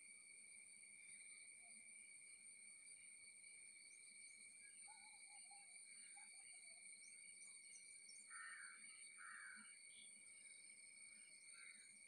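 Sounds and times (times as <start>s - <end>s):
high insect drone: 5.7s - 12.0s.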